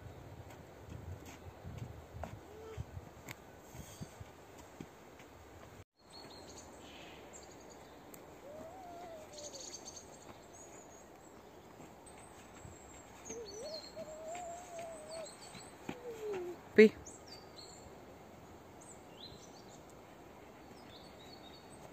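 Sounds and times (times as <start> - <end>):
faint songbird chirps: 6.0 - 21.9
owl hooting: 8.4 - 10.0, 13.2 - 16.6.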